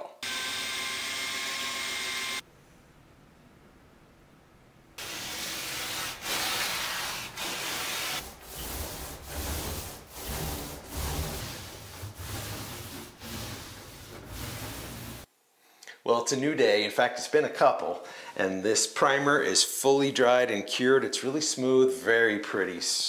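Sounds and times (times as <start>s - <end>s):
paint roller rubbing swish: 5.0s - 15.3s.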